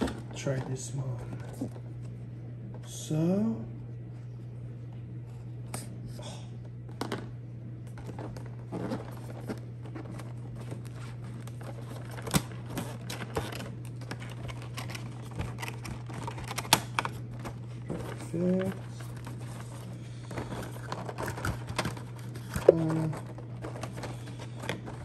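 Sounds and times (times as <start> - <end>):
steady low hum: 0.0 - 25.0
cardboard and plastic clicks and scrapes: 7.9 - 25.0.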